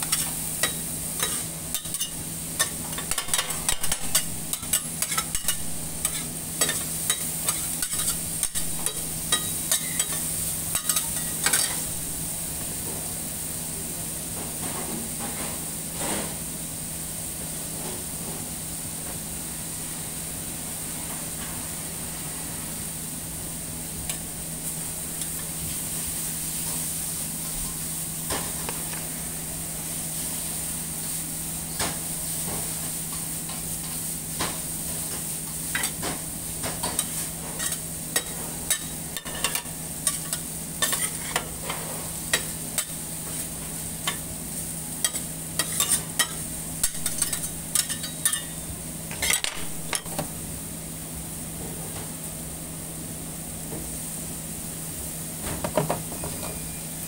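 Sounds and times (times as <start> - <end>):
metal spatula scraping griddle: 0.0 - 11.8, 36.8 - 43.4, 45.0 - 48.6
food sizzling on a griddle: 0.0 - 51.4, 52.2 - 57.0.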